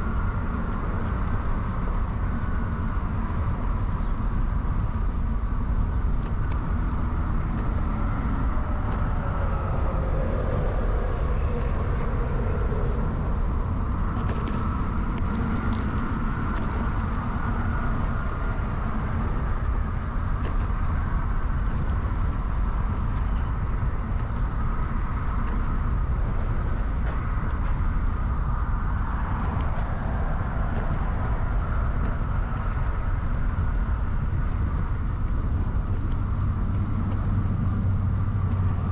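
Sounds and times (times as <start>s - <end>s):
bicycle tyres and wind rumble: 0.0s - 38.9s
bicycle clicks and rattles: 14.1s - 19.2s.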